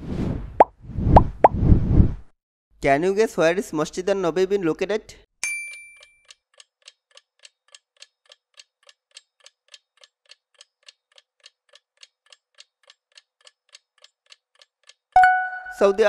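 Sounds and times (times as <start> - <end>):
faint clock ticking: 6.2 - 15.2.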